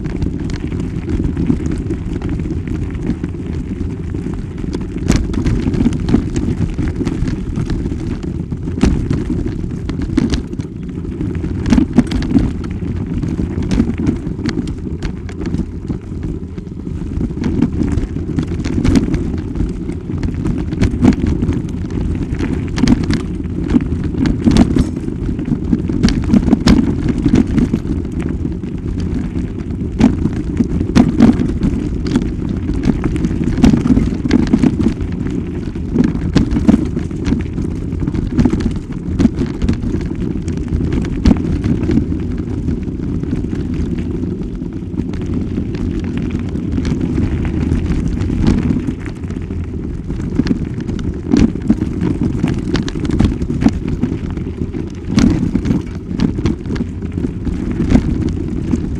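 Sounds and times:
wind buffeting microphone: 0.0s - 58.9s
camera knocks and rattles: 24.3s - 25.2s.

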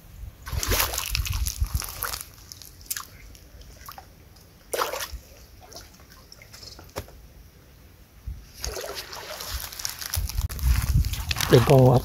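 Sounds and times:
water splashing and sloshing: 0.4s - 7.0s, 8.5s - 12.0s.

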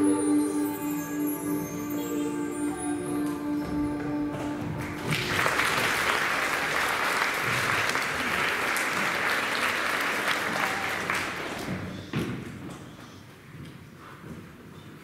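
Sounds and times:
audience clapping: 4.4s - 12.1s.

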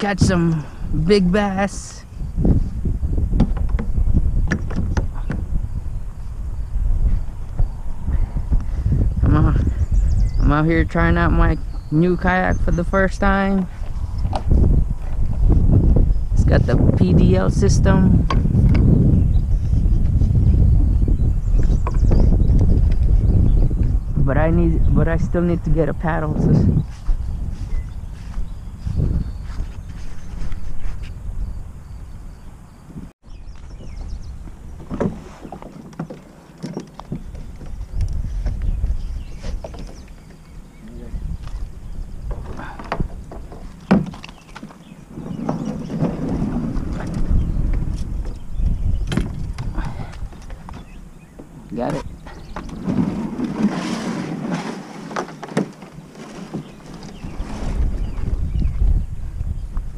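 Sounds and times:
wind rumble on microphone: 0.0s - 59.9s
plastic kayak knocks and scrapes: 2.4s - 5.6s, 33.8s - 40.3s, 42.2s - 58.6s
paddle knocks: 3.3s - 5.5s, 42.3s - 47.3s.

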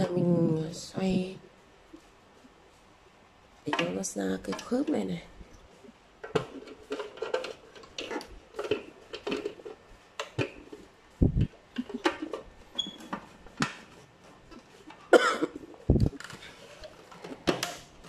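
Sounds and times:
plastic clatter: 6.2s - 10.9s, 11.7s - 15.1s, 16.0s - 18.0s
plastic clicks and scrapes: 6.2s - 15.1s, 16.0s - 18.0s.

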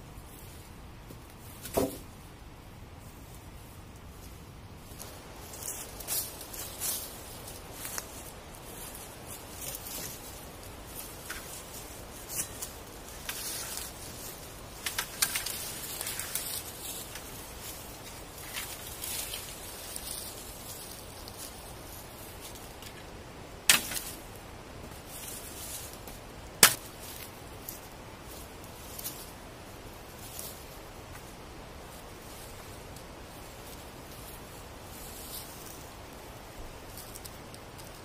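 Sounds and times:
dry leaves and twigs rustling: 0.0s - 38.0s
dry wood cracking: 11.0s - 19.9s, 25.8s - 27.3s.

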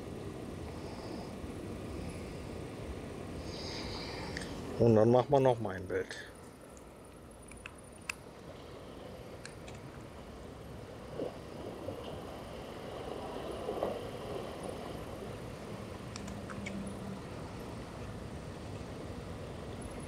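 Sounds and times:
low outdoor rumble: 0.0s - 20.0s
faint clicks: 4.3s - 4.6s, 6.4s - 8.2s, 16.1s - 16.9s.

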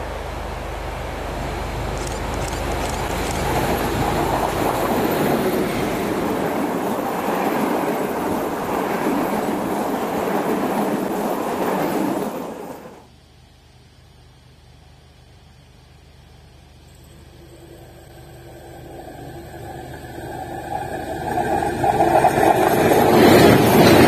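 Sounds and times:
train wheels on rails: 0.0s - 13.1s, 18.1s - 24.0s.

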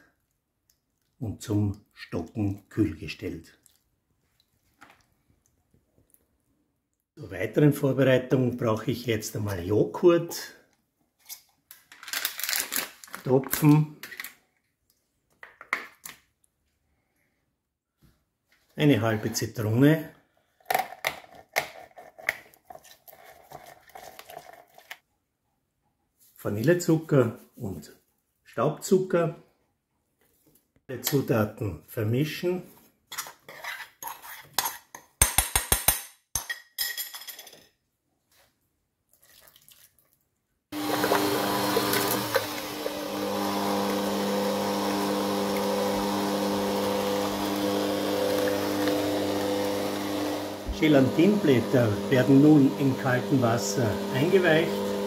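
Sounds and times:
electric mixer running: 40.8s - 55.0s.

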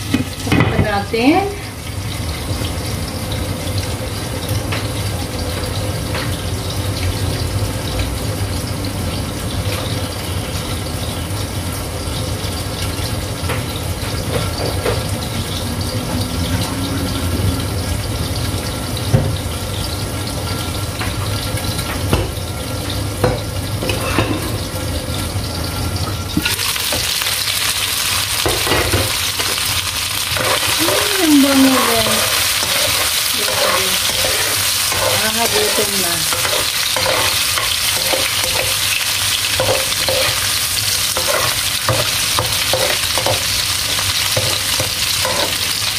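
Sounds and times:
chicken sizzling in a pan: 0.0s - 45.9s
spoon scraping a pan: 23.9s - 24.6s, 28.4s - 45.9s
watery hiss in covered wok: 29.0s - 45.9s.

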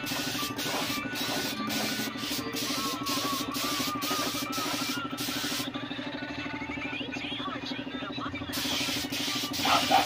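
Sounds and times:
paint spray gun hissing: 0.0s - 5.7s, 8.5s - 10.0s.

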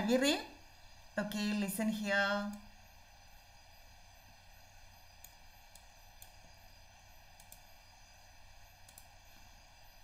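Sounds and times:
faint hiss and low hum: 0.0s - 10.0s
faint clicks: 5.2s - 6.5s, 7.3s - 7.8s, 8.8s - 9.2s.

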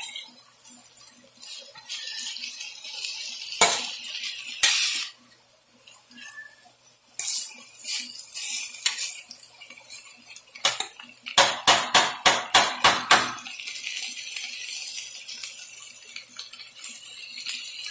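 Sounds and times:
food sizzling in a pan: 0.0s - 17.9s
metal utensil knocking on pan: 10.6s - 13.4s.

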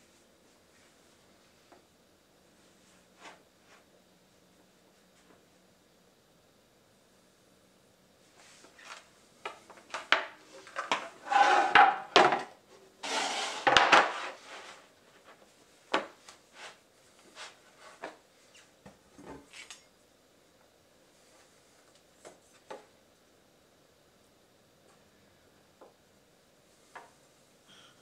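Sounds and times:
boards scraping together: 10.8s - 12.4s, 13.0s - 14.8s
boards knocking on tile floor: 11.3s - 12.5s.

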